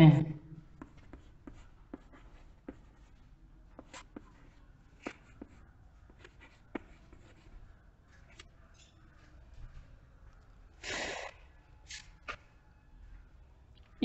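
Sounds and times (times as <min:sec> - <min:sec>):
chalk tapping and scratching: 0:00.8 - 0:08.5.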